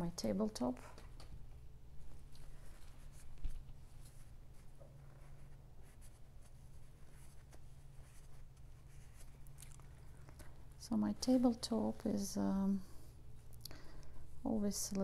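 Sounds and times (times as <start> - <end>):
low steady hum: 0.0 - 15.0
paintbrush brushing and scraping: 2.0 - 11.6.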